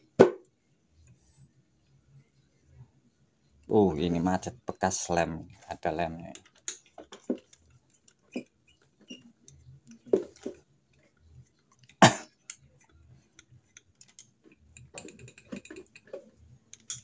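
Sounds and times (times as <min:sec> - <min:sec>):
metallic clicks of tools: 0:11.8 - 0:17.0.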